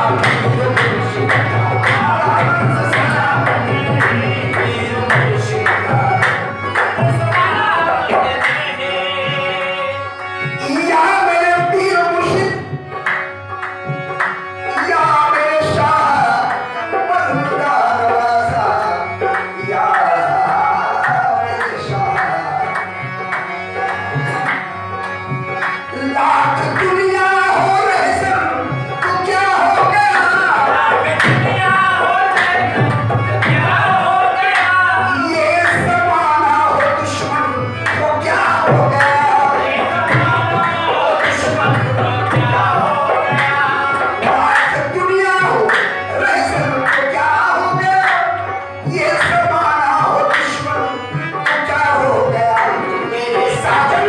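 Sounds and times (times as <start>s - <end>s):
hand drum rhythm: 0.0s - 9.8s, 26.0s - 50.2s
harmonium: 0.0s - 54.0s
men singing: 0.0s - 54.0s.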